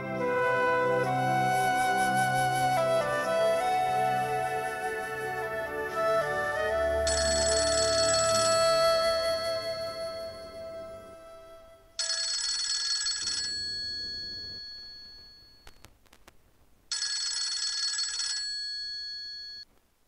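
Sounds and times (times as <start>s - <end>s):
mobile phone ringtone: 7.0s - 10.6s, 12.0s - 15.8s, 16.9s - 19.6s.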